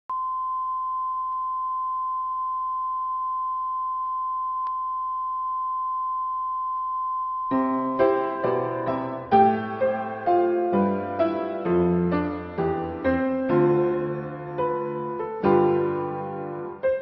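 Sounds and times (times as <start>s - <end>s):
single-pitch test tone: 0.1s - 7.6s
piano music: 7.5s - 17.0s.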